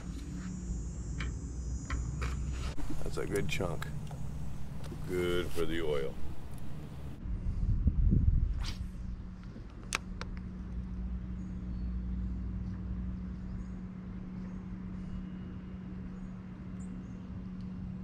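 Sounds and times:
deep rumble: 2.7 - 14.4
boat motor humming: 2.8 - 7.2.

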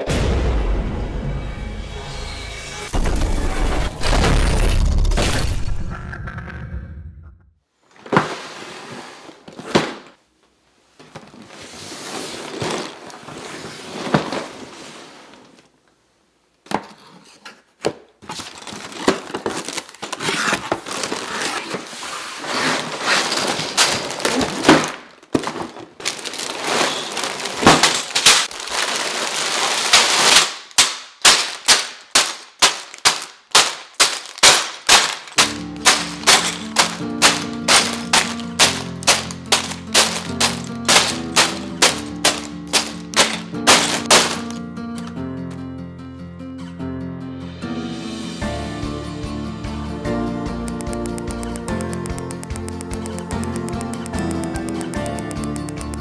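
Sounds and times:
cardboard scraping and rustling: 8.0 - 10.0, 11.2 - 15.7, 16.8 - 30.4, 35.2 - 44.6
plastic bags crinkling: 18.3 - 44.6
sharp plastic clacks: 50.6 - 56.0.

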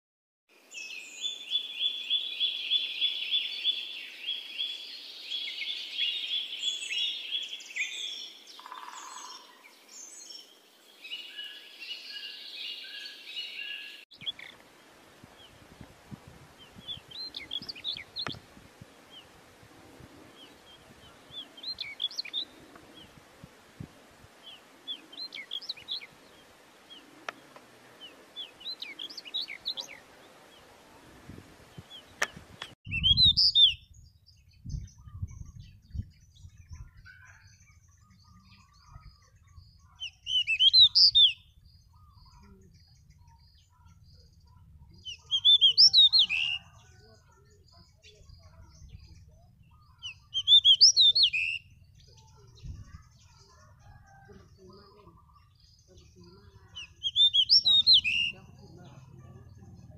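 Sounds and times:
bird song phrases: 0.6 - 59.9
rapid trilling bird chirps: 16.6 - 23.2, 31.8 - 33.9, 34.7 - 59.9.

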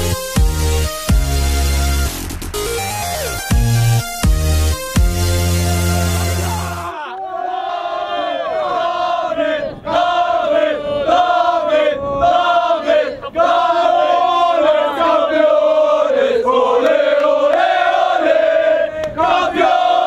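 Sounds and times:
crowd chanting a song: 6.4 - 20.0.

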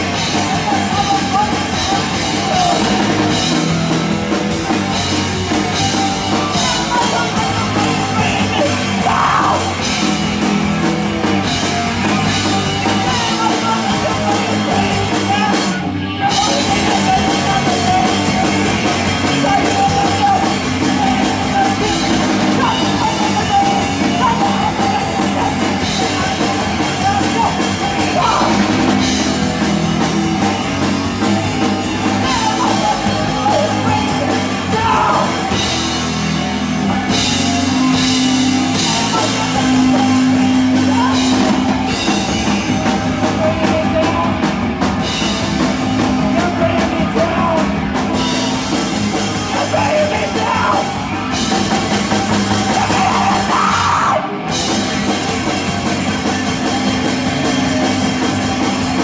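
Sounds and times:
person singing: 0.0 - 3.8, 5.7 - 10.0, 11.4 - 29.2, 31.6 - 35.8, 37.1 - 44.5, 49.4 - 51.3, 52.3 - 54.5
punk rock band playing: 0.0 - 59.0.

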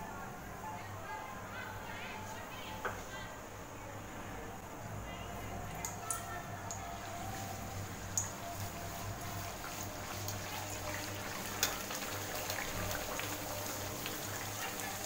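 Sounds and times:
hot oil sizzling and crackling: 6.0 - 15.0.

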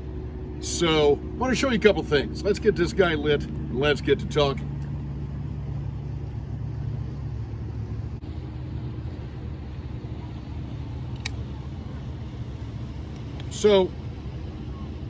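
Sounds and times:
low rumble: 0.0 - 15.0
lighter click: 11.1 - 11.5.

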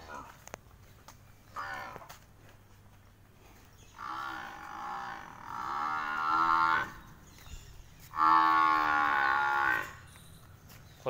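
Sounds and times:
buffalo bellowing: 1.5 - 2.1, 4.0 - 7.0, 8.1 - 10.1.

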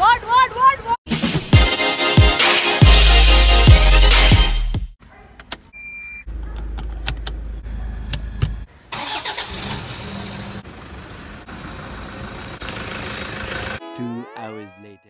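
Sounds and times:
short beep: 5.8 - 6.3
car engine starting and idling: 6.3 - 13.8
ignition key clicking: 6.4 - 7.4.

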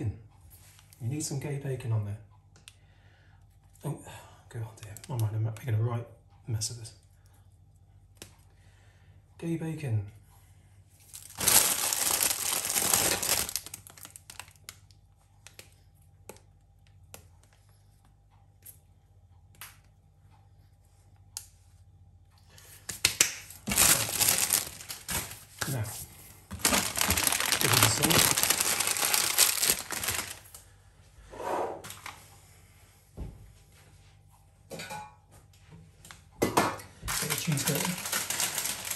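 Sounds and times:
plastic packet crinkling and tearing: 11.0 - 14.9, 23.2 - 25.8, 26.5 - 30.6, 37.1 - 38.9.

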